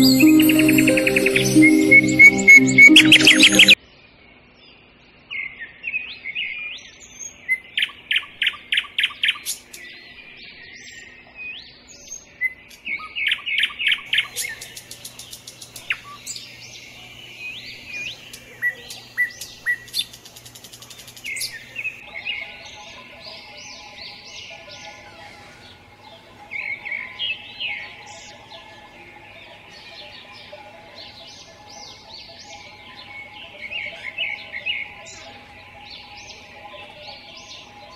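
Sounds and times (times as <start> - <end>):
small birds chirping and singing: 0.0 - 3.8, 4.6 - 37.9.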